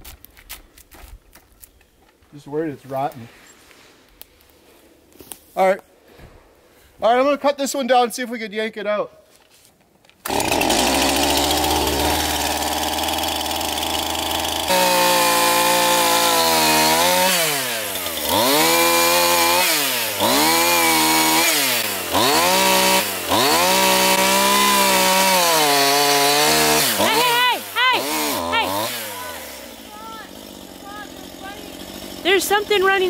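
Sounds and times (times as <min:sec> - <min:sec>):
chainsaw revving: 0:10.2 - 0:33.0.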